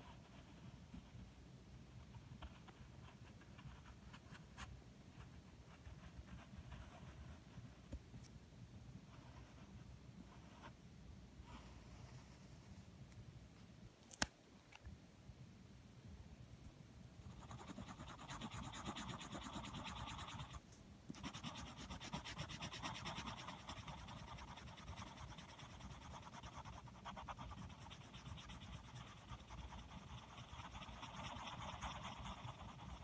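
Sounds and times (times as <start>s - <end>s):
pencil scribbling on paper: 17.2s - 33.0s.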